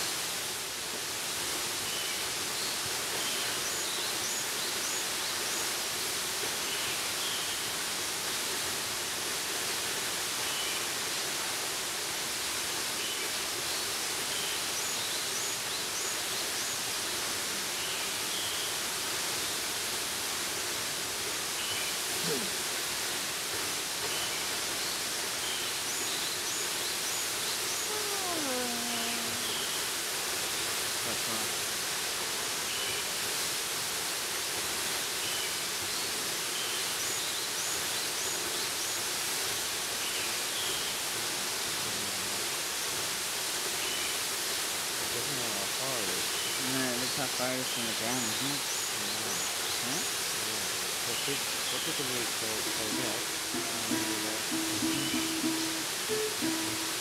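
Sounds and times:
waterfall rushing: 0.0s - 57.0s
faint high chirps: 48.4s - 57.0s.

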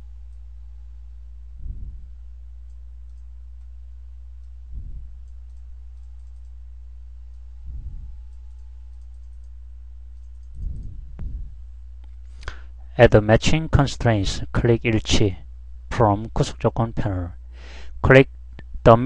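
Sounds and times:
low electrical hum: 0.0s - 19.0s
computer mouse clicks: 2.6s - 3.3s, 5.2s - 6.6s, 8.3s - 11.0s
faint ticks: 2.6s - 3.7s, 5.2s - 6.6s, 8.3s - 11.3s.

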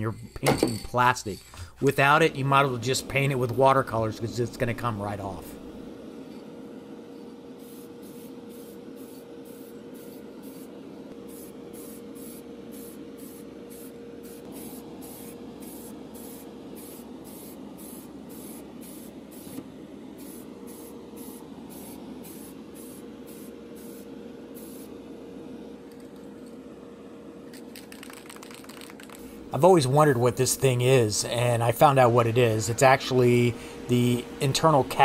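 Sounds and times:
steady low hum: 0.0s - 35.0s
spray paint can hissing bursts: 7.6s - 10.7s, 11.3s - 19.5s, 20.2s - 24.9s, 27.5s - 29.3s.

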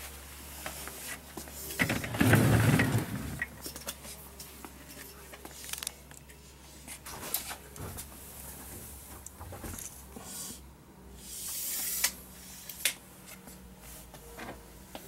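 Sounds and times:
tape measure retracting hiss: 11.2s - 13.0s.

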